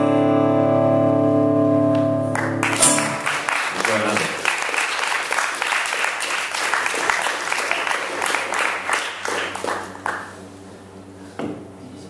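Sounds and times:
audience applauding: 0:02.4 - 0:10.4.

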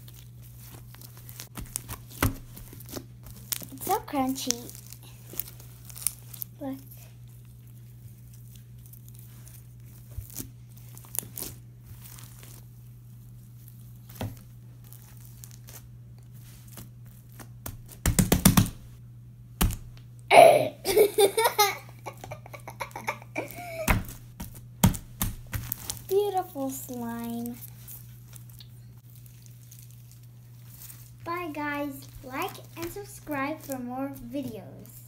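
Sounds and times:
slime beads clicking and crackling: 0:00.0 - 0:07.6, 0:08.2 - 0:12.6, 0:24.4 - 0:35.0
child's voice: 0:03.7 - 0:04.8, 0:06.6 - 0:07.1, 0:26.1 - 0:27.6, 0:31.3 - 0:35.0
slime smacking: 0:23.0 - 0:26.1.

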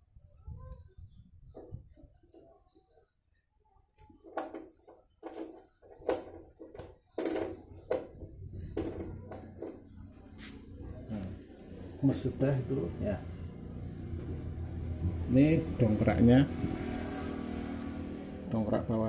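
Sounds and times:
metallic clinks and knocks: 0:04.1 - 0:10.1.

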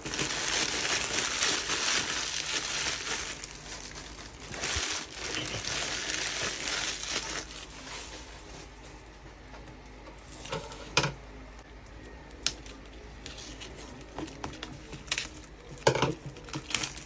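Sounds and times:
plastic packaging crinkling: 0:00.0 - 0:08.8, 0:12.5 - 0:17.0.

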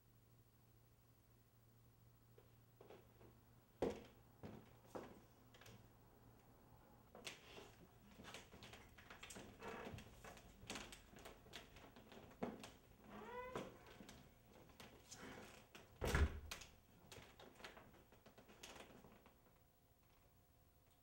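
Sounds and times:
low room hum: 0:00.0 - 0:21.0
footsteps on hardwood floor: 0:02.8 - 0:05.2.

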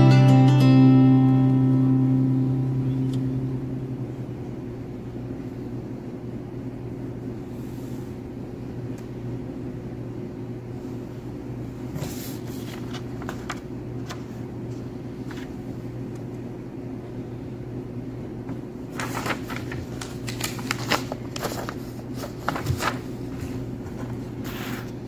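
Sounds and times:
low mechanical hum: 0:00.0 - 0:25.0
paper rustling: 0:11.9 - 0:14.4, 0:15.2 - 0:15.6, 0:18.9 - 0:25.0.

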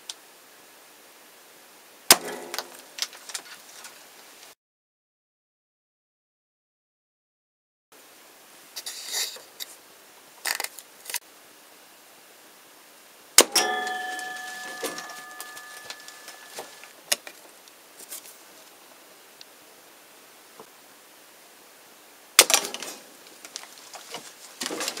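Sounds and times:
arrow hitting with sharp crack: 0:02.1 - 0:03.0, 0:22.4 - 0:23.0
metal shaft ringing: 0:13.5 - 0:16.9.

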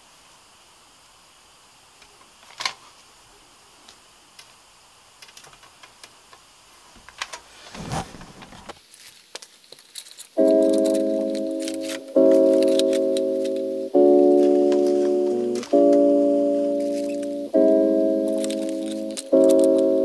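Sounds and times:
fabric rustling: 0:06.9 - 0:10.2
metal wires clicking and rattling: 0:08.9 - 0:13.1, 0:18.3 - 0:19.9.

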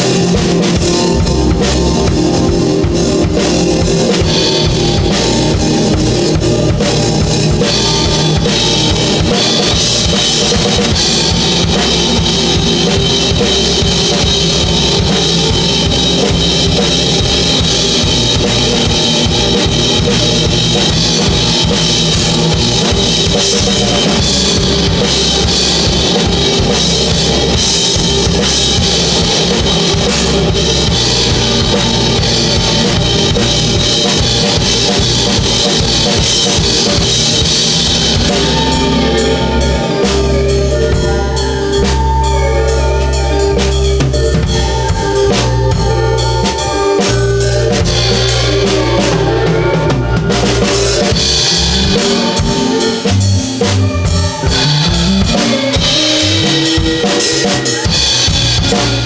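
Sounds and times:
bass drum: 0:00.0 - 0:59.0
cymbals: 0:00.0 - 0:59.0
rock band jamming: 0:00.0 - 0:59.0.

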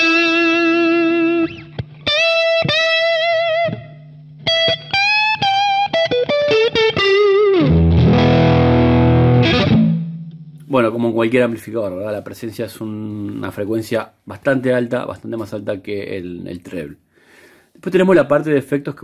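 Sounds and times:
electric guitar notes with bends: 0:00.0 - 0:10.6
overdriven guitar chord ringing: 0:00.0 - 0:10.6.

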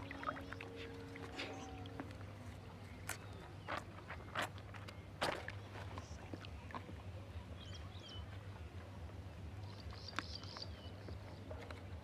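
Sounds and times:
low hum: 0:00.0 - 0:04.1.

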